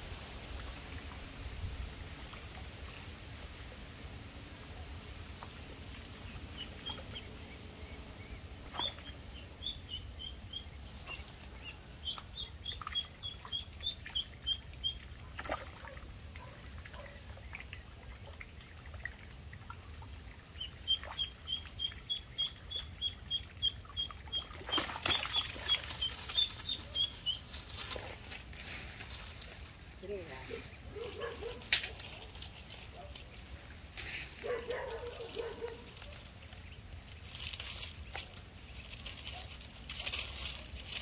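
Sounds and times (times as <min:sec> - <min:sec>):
duckling peeping: 0:06.2 - 0:15.1, 0:20.5 - 0:28.1.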